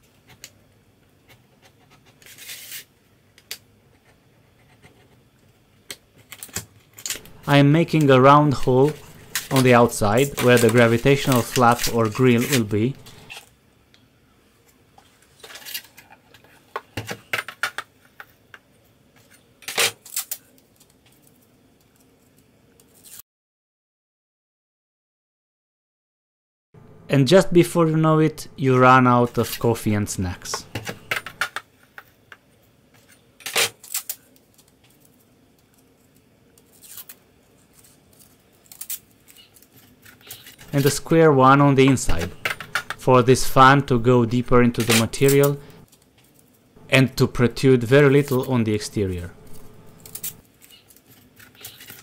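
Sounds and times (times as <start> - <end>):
knife slicing insulating panel: 2.2 - 2.9, 8.6 - 13.4.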